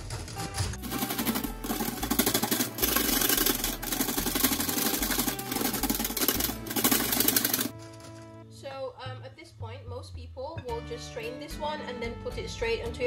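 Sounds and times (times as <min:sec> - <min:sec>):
whisk clicking against glass bowl: 0:00.9 - 0:07.7.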